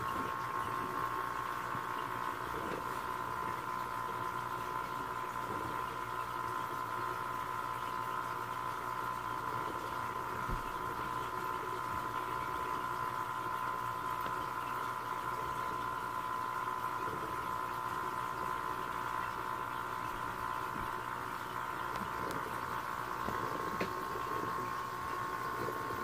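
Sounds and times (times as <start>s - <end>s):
aquarium pump humming: 0.0s - 26.0s
faint water bubbling: 0.0s - 26.0s.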